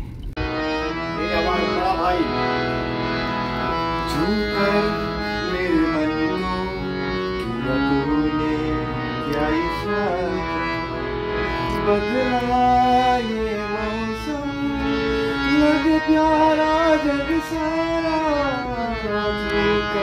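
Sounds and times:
harmonium playing sustained chords: 0:00.4 - 0:20.0
man singing slow melody: 0:04.0 - 0:11.0, 0:11.7 - 0:20.0.

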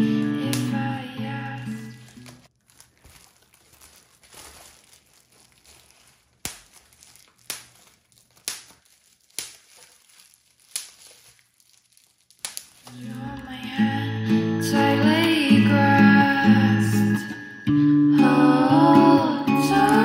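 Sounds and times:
bubble wrap popping: 0:00.0 - 0:13.5, 0:19.7 - 0:20.0
bubble wrap crinkling: 0:00.0 - 0:13.8, 0:19.6 - 0:20.0.

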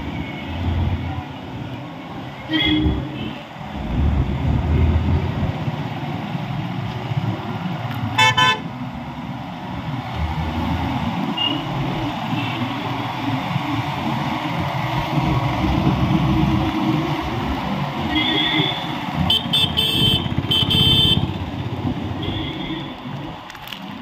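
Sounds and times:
road and traffic noise: 0:00.0 - 0:24.0
vehicle horn honking: 0:08.2 - 0:08.6, 0:18.1 - 0:21.3.

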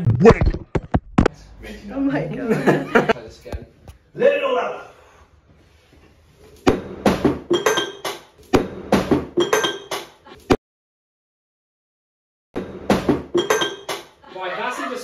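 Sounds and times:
glassware smashing: 0:07.4 - 0:08.2, 0:08.9 - 0:10.1, 0:13.3 - 0:14.2.

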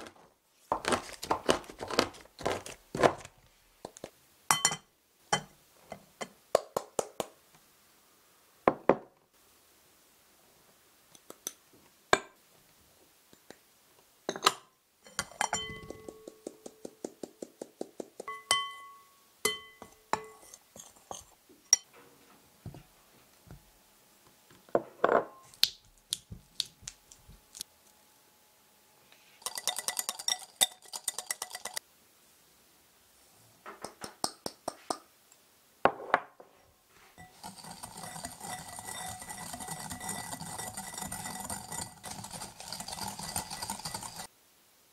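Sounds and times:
tools tapping glass bowl: 0:04.5 - 0:05.5, 0:14.3 - 0:17.2, 0:18.2 - 0:21.9, 0:37.2 - 0:44.3
whisk scraping round bowl: 0:37.2 - 0:44.3.

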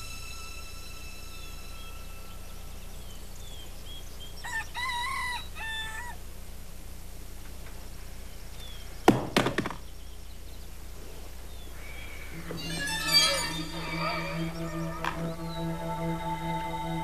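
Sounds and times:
low hum: 0:00.0 - 0:04.5, 0:11.4 - 0:17.0
small birds chirping: 0:00.0 - 0:06.2, 0:07.8 - 0:17.0
rooster crowing: 0:04.4 - 0:06.2.

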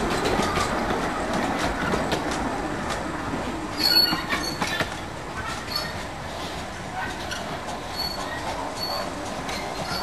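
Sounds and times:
train wheels clicking over rail joints: 0:00.0 - 0:10.0
high-pitched wheel squeal: 0:03.8 - 0:04.7.

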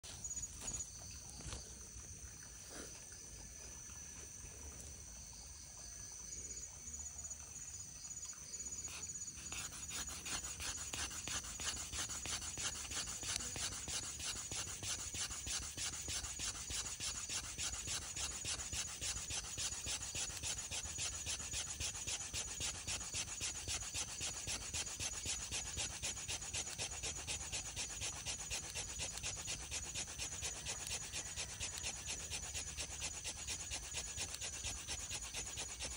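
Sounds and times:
wooden stick scraping in groove: 0:08.9 - 0:35.9.

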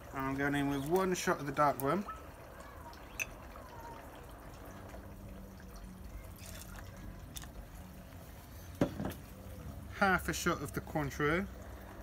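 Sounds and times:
liquid pouring: 0:00.0 - 0:12.0
ice clinking in glass: 0:06.4 - 0:07.5.

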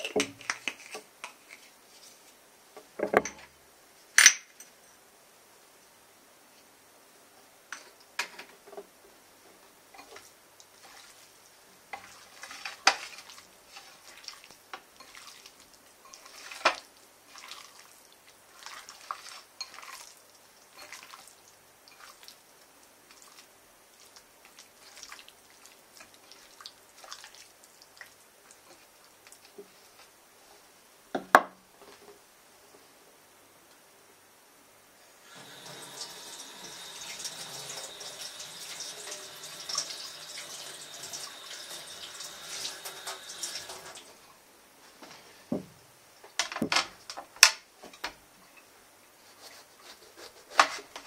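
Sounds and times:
wet squishing of raw chicken: 0:12.0 - 0:22.4, 0:23.0 - 0:30.0.

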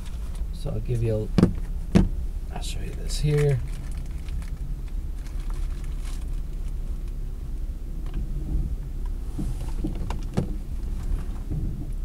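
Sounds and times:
car engine idling: 0:00.0 - 0:12.0
light clicks and rustles: 0:02.7 - 0:07.2, 0:08.0 - 0:12.0.

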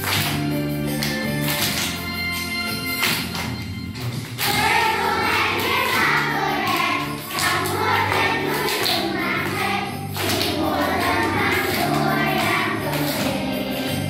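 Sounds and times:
hands clapping: 0:00.0 - 0:14.0
group singing children's song: 0:04.4 - 0:14.0.

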